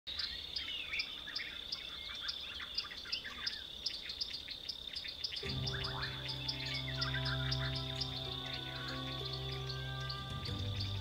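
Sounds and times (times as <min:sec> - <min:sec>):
wild birds chirping: 0:00.1 - 0:11.0
music with sustained chords: 0:05.4 - 0:11.0.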